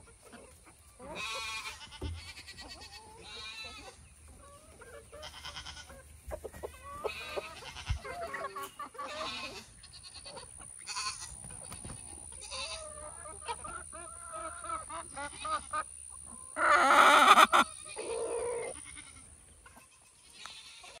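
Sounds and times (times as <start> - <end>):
hens clucking: 0.0 - 21.0
loud hen call: 1.0 - 4.0, 6.6 - 11.4, 12.4 - 15.9, 16.5 - 21.0.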